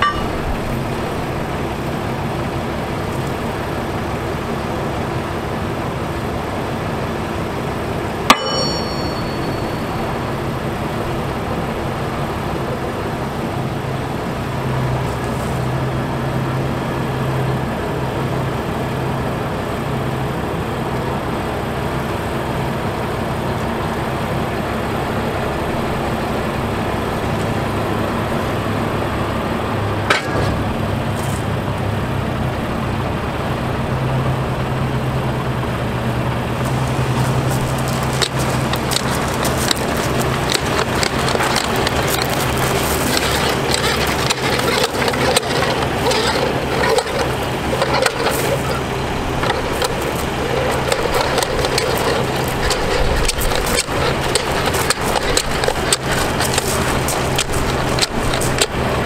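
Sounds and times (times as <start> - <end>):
metallic clank: 0.0 - 0.9, 8.3 - 10.5, 37.0 - 58.8
diesel engine running: 0.0 - 59.0.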